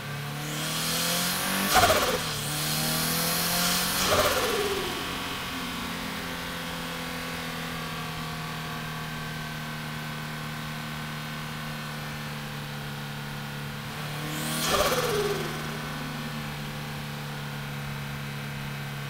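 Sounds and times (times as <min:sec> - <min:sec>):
car engine droning: 0:00.0 - 0:19.0
loud rushing whoosh: 0:01.4 - 0:07.4, 0:13.8 - 0:17.8.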